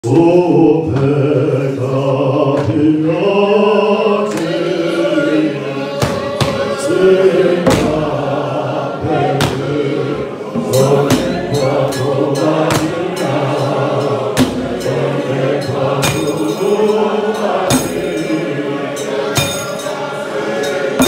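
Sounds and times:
men singing a hymn: 0.0 - 21.0
sharp hits: 10.6 - 18.4.

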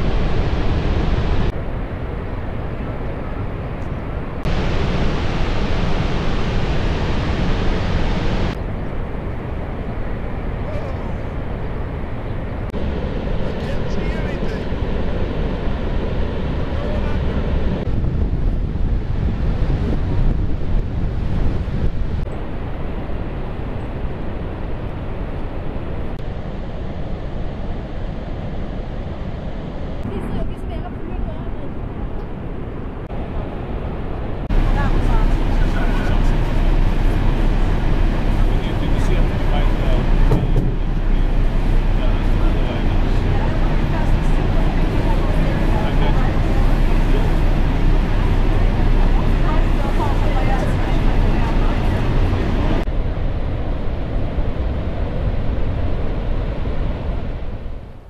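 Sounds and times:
wind rumble on microphone: 0.0 - 58.0
waterfall roaring: 4.4 - 8.8, 34.5 - 52.8.

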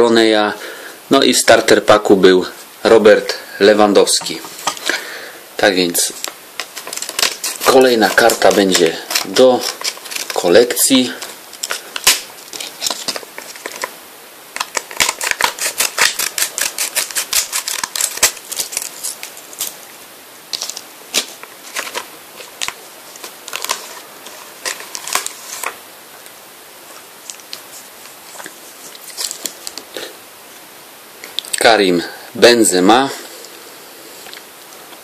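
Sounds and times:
stiff plastic crinkling: 5.9 - 19.8, 20.5 - 25.8, 26.9 - 30.0
scissors snipping plastic: 14.6 - 19.7.

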